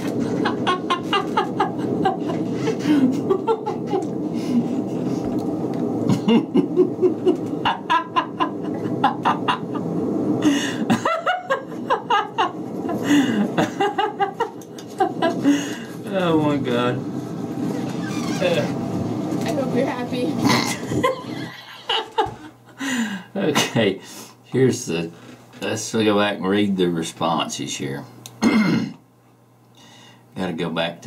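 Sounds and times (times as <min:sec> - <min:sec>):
man laughing: 0:00.0 - 0:05.2, 0:06.0 - 0:16.0, 0:20.5 - 0:24.0
low rushing noise: 0:00.0 - 0:22.7.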